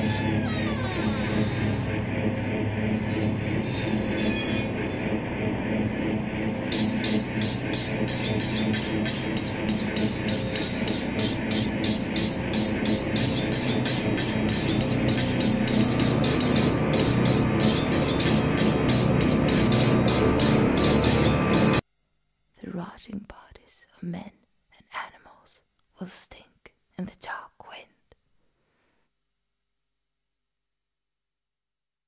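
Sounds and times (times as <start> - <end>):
thin high whine: 7.9 - 32.0
fast rhythmic crackle: 8.1 - 21.8
low ambient drone: 8.4 - 21.8
harsh noisy texture: 8.5 - 21.8.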